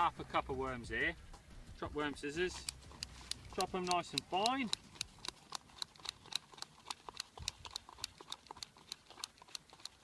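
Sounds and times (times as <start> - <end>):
scissors snipping rapidly: 2.5 - 10.0.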